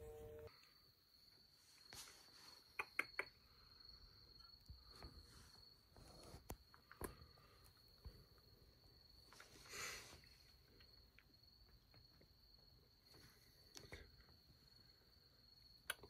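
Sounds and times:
faint high-pitched tone: 0.0 - 0.8.

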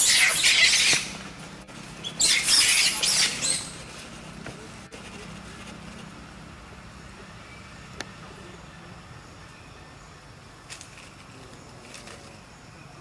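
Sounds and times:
monkey screeching: 0.0 - 1.2, 2.0 - 3.8.

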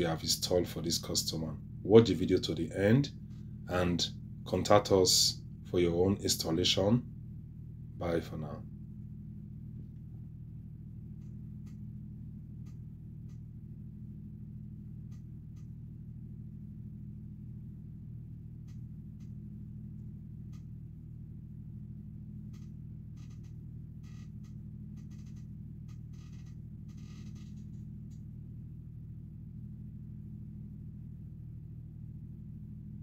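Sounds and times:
inverter electrical hum: 0.0 - 33.0
faint ticks: 12.6 - 13.5, 15.0 - 15.8, 18.6 - 19.4, 20.0 - 20.8, 22.5 - 28.3.

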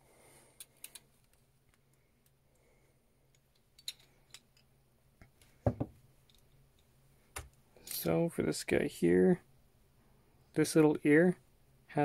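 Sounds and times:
small metal parts clinking: 0.6 - 2.4, 3.3 - 4.7.

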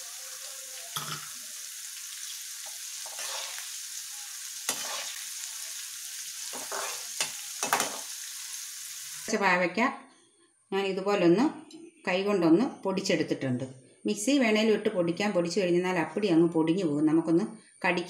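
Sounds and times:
chillies sizzling in hot oil: 0.0 - 9.4
metal spoon clinking and scraping pan: 0.9 - 1.4, 2.6 - 3.8, 4.6 - 5.4, 6.4 - 8.2.

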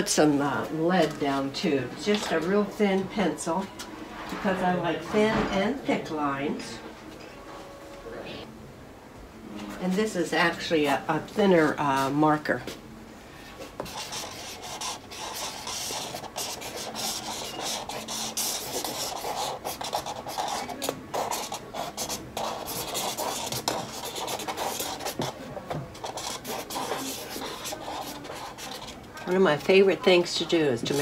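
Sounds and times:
marker scratching on canvas: 13.7 - 31.0.

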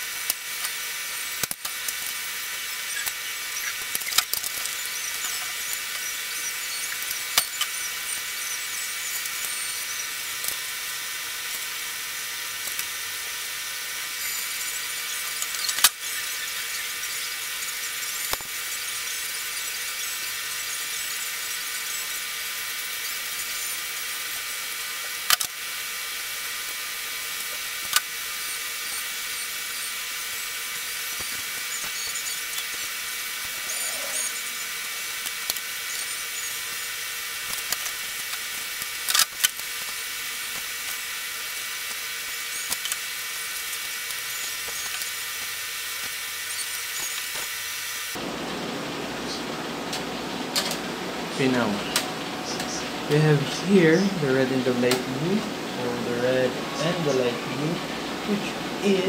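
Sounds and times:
high-pitched hiss with whining tones: 0.0 - 48.2, 50.6 - 59.0.

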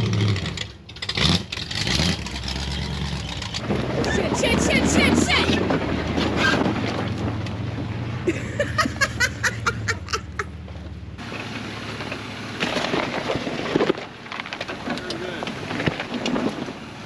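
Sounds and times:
car engine running: 0.0 - 17.0
sharp clicks and cracks: 12.6 - 16.7.

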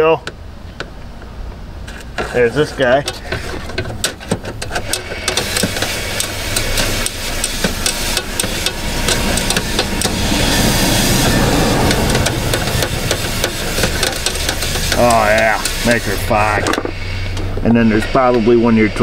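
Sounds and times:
steady low hum: 0.0 - 19.0
spray gun hissing: 4.8 - 19.0.

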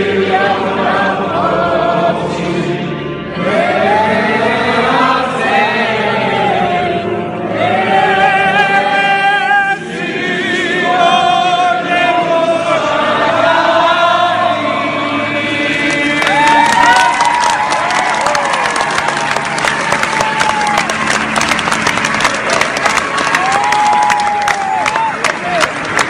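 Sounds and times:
crowd singing in unison: 0.0 - 19.1.

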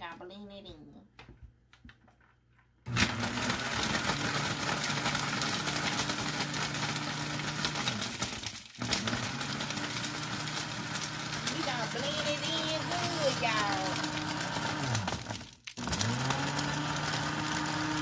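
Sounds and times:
blender motor running: 2.9 - 18.0.

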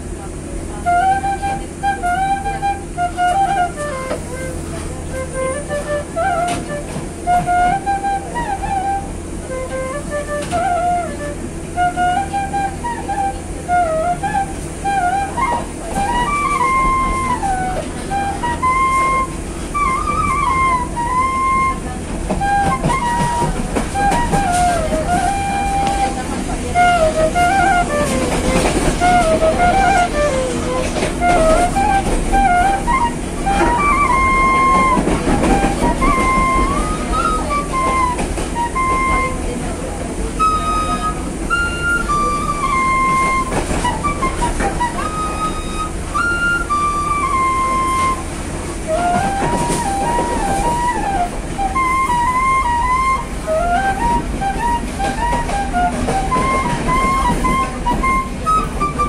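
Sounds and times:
bamboo flute melody: 0.0 - 59.0
train rumble: 0.0 - 59.0
sharp clicks from train wheels: 1.2 - 59.0.

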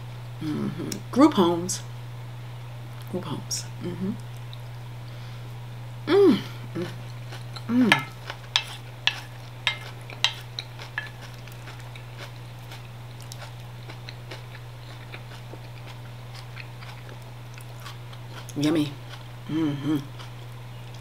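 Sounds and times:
steady low hum: 0.0 - 21.0
person humming: 0.4 - 1.1, 3.7 - 4.3, 6.0 - 7.0, 7.6 - 8.2, 19.4 - 20.2
cutlery scraping a plate: 7.9 - 11.2.

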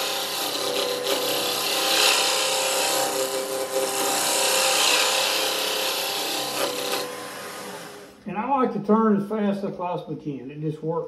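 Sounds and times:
lathe humming: 0.0 - 8.2
scraper scraping wood: 0.0 - 8.2.

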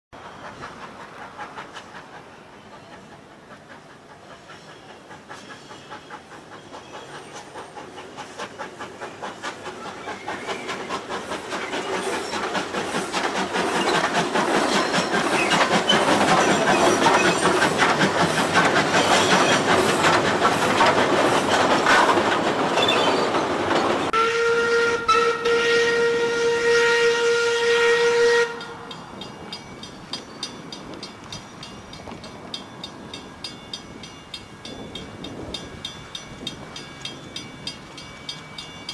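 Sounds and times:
steam locomotive exhaust chuffs: 0.2 - 38.9
steam whistle: 24.1 - 28.8.

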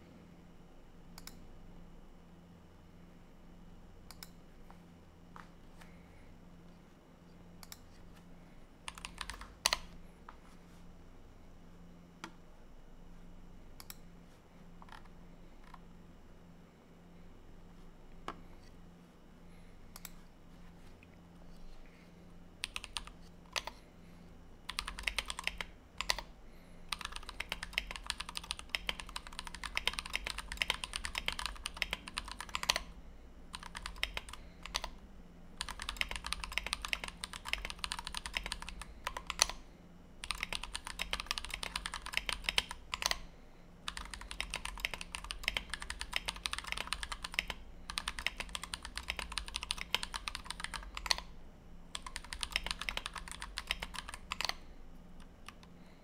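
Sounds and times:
fast mechanical keyboard typing: 8.9 - 9.9, 22.6 - 23.8, 24.7 - 26.3, 26.9 - 32.9, 33.5 - 35.0, 35.6 - 39.6, 40.2 - 43.2, 43.9 - 51.3, 51.9 - 54.6.

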